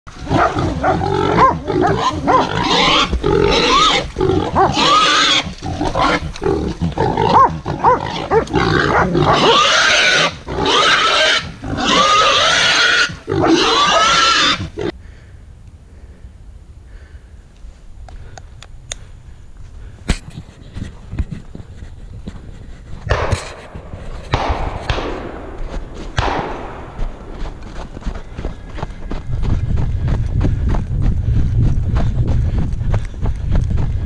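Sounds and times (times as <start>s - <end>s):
dogs barking and growling: 0.1s - 14.9s
wild boar squealing: 0.2s - 14.9s.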